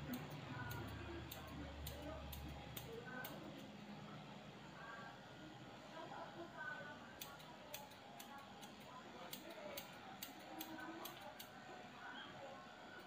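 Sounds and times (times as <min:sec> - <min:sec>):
scissors snipping hair: 0:00.0 - 0:03.7, 0:07.2 - 0:11.6.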